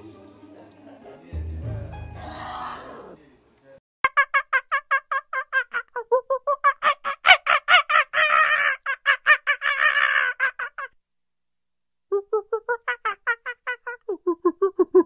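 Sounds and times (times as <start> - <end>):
animal calling in rapid notes: 2.2 - 3.2, 6.6 - 11.0.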